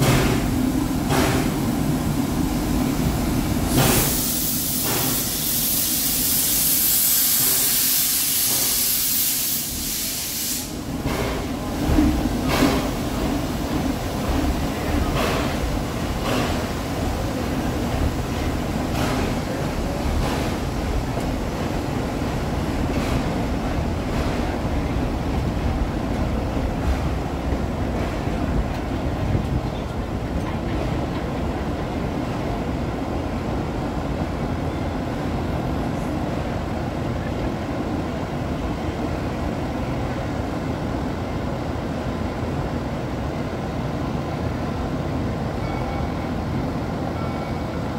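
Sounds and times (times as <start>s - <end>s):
steam locomotive chuffing: 0.0s - 32.8s.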